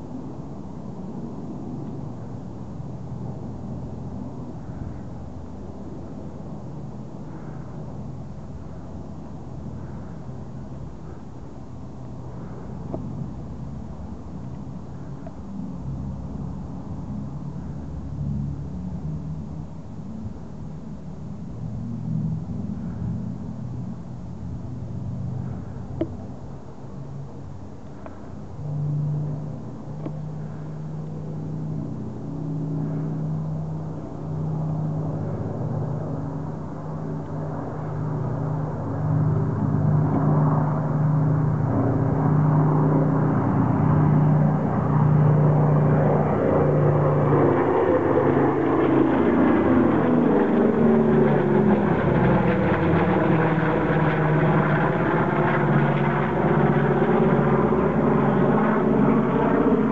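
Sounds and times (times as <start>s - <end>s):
aircraft engine drone: 0.0s - 59.9s.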